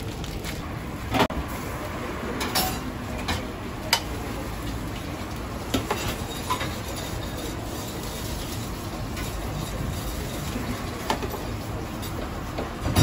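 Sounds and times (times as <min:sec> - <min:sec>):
steady background noise: 0:00.0 - 0:13.0
metal utensils clinking: 0:05.7 - 0:12.3.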